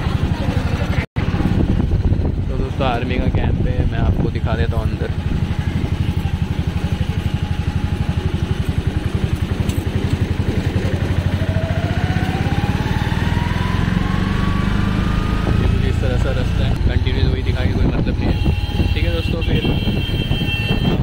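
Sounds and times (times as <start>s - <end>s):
rising whine: 10.8s - 18.0s.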